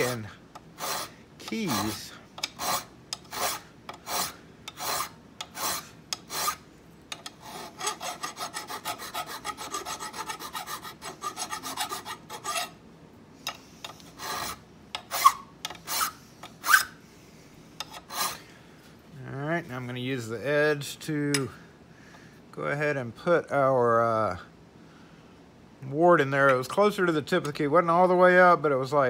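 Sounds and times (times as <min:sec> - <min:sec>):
file rasping on metal: 0:00.8 - 0:06.6, 0:07.3 - 0:12.8, 0:14.0 - 0:16.9, 0:17.8 - 0:18.4
file squeal: 0:00.8 - 0:06.6, 0:07.4 - 0:12.8, 0:14.2 - 0:17.0.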